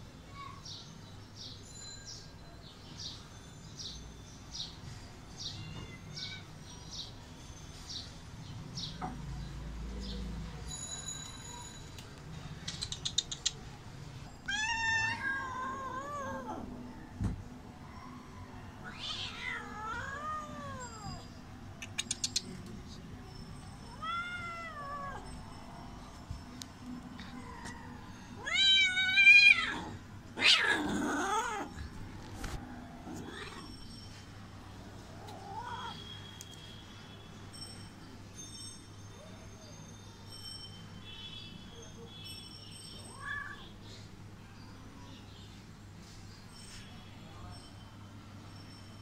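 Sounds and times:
cat meowing: 14.4s - 16.7s, 18.8s - 21.3s, 23.9s - 25.2s, 28.4s - 31.8s, 35.2s - 36.0s.

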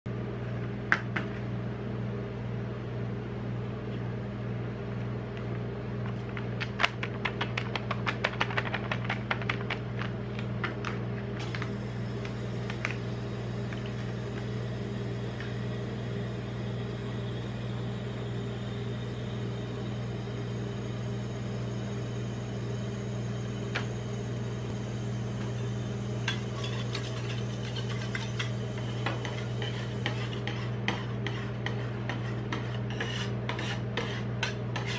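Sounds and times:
cold plate machine humming: 0.1s - 34.9s
spatulas scraping on metal plate: 26.3s - 34.9s.

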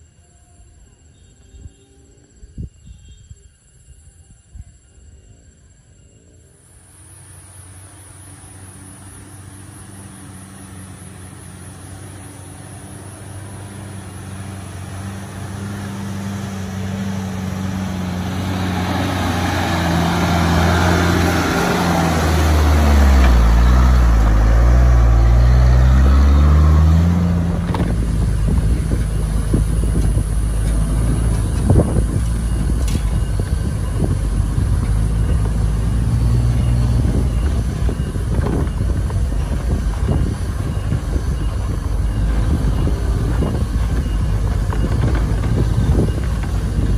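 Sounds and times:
truck diesel engine labouring: 6.6s - 46.9s
truck knocks and rattles: 10.6s - 46.9s.

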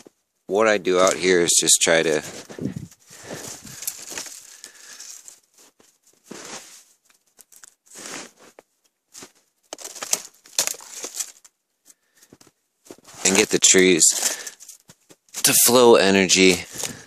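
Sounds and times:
footsteps crunching in snow: 2.1s - 11.4s, 12.8s - 14.6s.

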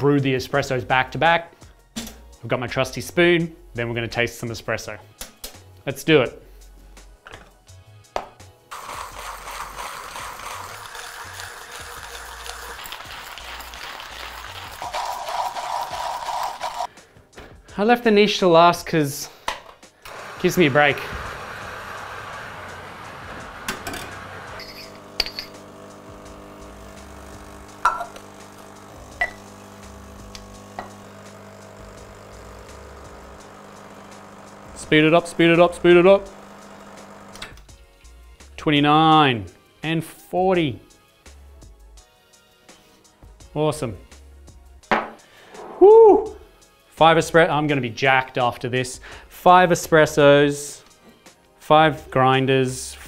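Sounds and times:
espresso machine pump humming: 8.7s - 16.9s, 20.1s - 37.5s
hand coffee grinder crushing beans: 8.7s - 16.9s
glass and metal clinks: 24.6s - 25.6s.

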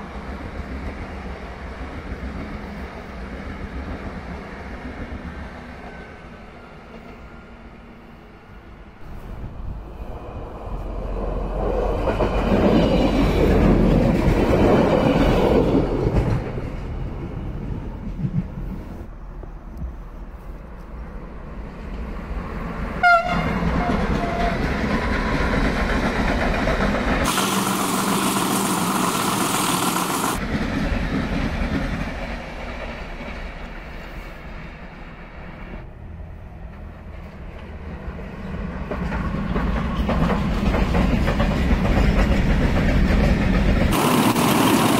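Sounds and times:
train wheels rumbling and clattering: 9.0s - 35.9s, 36.5s - 44.9s
train horn toot: 23.0s - 24.7s.

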